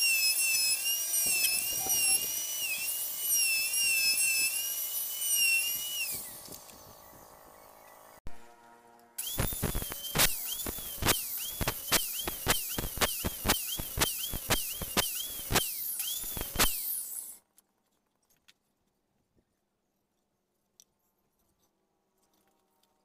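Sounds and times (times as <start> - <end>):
circular saw cutting wood: 0.0 - 8.5, 9.2 - 17.4.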